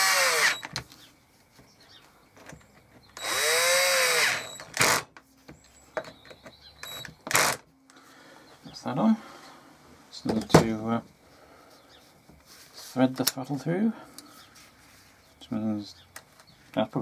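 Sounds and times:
cordless drill driving screws: 0:00.0 - 0:00.7, 0:03.2 - 0:05.1, 0:06.8 - 0:07.6.

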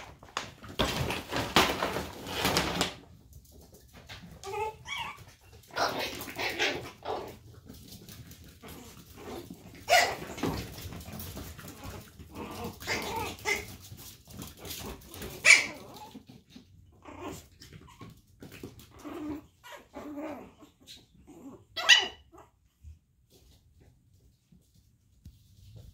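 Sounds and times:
puppies yipping and growling: 0:04.2 - 0:07.6, 0:08.5 - 0:22.6
sharp loud puppy yips: 0:21.8 - 0:22.2.

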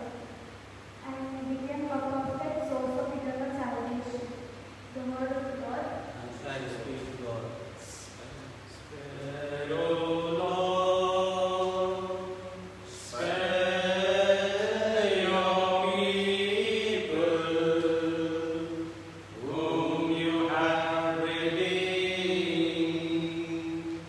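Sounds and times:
voices singing a chant-like hymn: 0:08.7 - 0:24.0.

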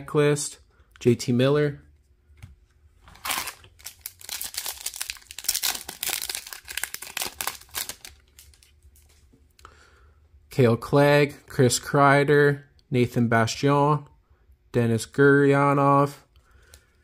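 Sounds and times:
foil wrapper crinkling and tearing: 0:03.1 - 0:09.1.

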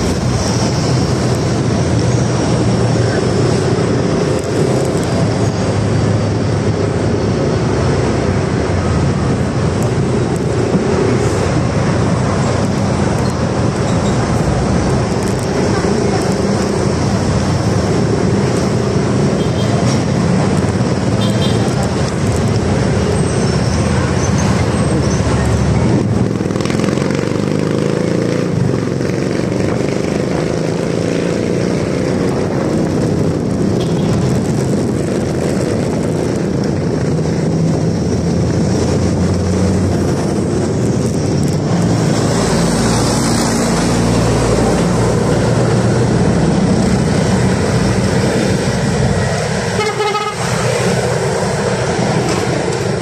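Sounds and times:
wind and road noise: 0:00.0 - 0:53.0.

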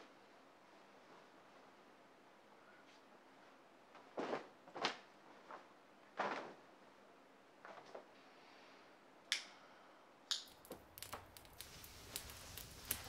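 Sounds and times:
fire rumbling and crackling: 0:10.5 - 0:13.0.

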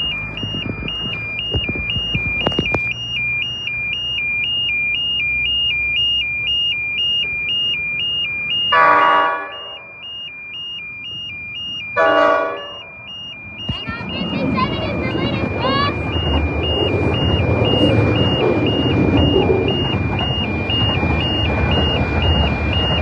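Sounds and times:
level crossing alarm: 0:00.0 - 0:23.0
train horn blast: 0:08.8 - 0:09.6, 0:12.0 - 0:12.8.

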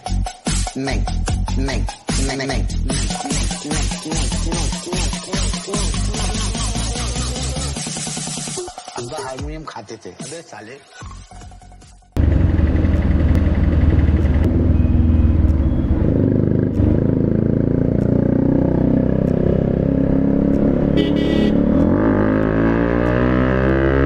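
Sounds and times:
motorcycle engine revving: 0:12.2 - 0:24.0
horn beep: 0:14.5 - 0:16.3, 0:20.8 - 0:21.8.

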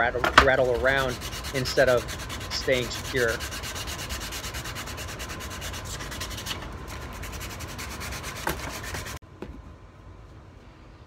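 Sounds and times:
rough rubbing on wood: 0:00.4 - 0:09.2.

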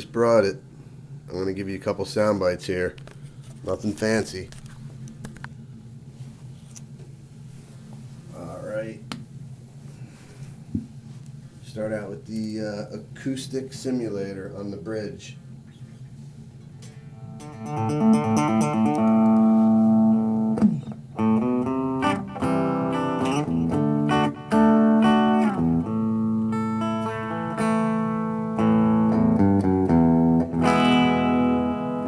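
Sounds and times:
ringing electric guitar notes: 0:16.8 - 0:32.0.

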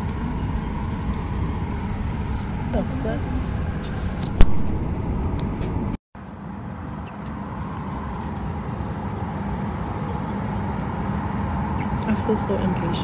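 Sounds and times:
jet airliner cabin noise: 0:00.0 - 0:06.0.

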